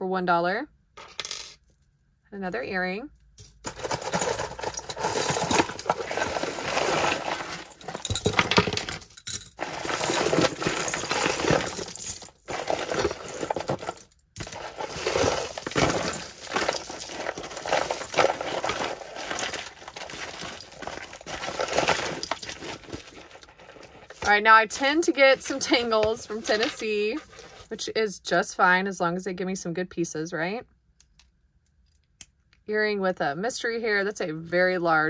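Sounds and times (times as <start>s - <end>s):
jewelry clinking and jingling: 3.3s - 27.7s.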